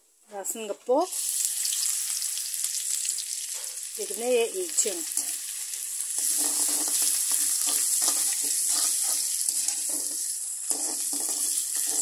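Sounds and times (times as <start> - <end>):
food sizzling in hot oil: 0.4 - 12.0
metal spoon stirring in wok: 6.1 - 12.0.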